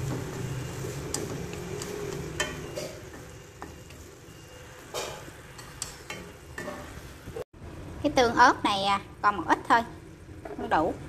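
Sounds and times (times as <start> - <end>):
food sizzling in a pan: 0.0 - 7.4
spatula scraping a pan: 0.3 - 7.1.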